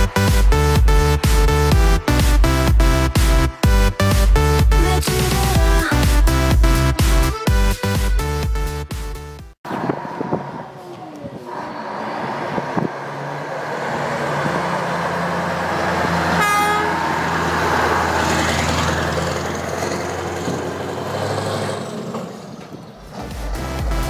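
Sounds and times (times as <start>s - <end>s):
lorry passing by: 9.7s - 24.0s
short horn toot: 16.4s - 17.0s.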